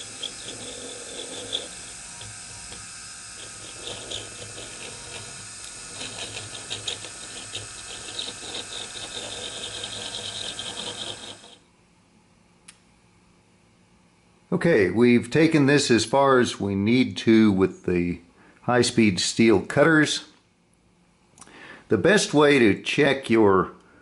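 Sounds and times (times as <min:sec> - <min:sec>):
rotary tool cutting wood: 0:00.0 - 0:11.6.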